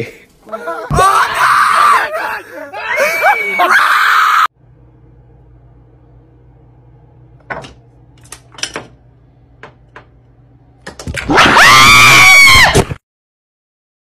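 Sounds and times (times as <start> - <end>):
person screaming: 0.6 - 4.5, 11.3 - 12.8.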